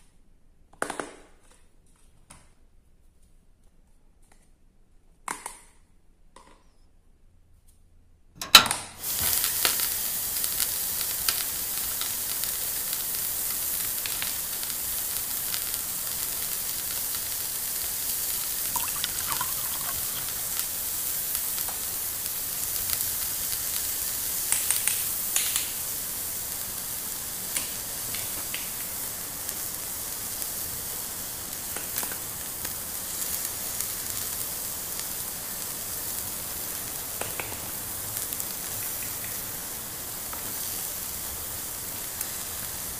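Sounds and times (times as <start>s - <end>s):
frying sizzle: 9.0s - 42.9s.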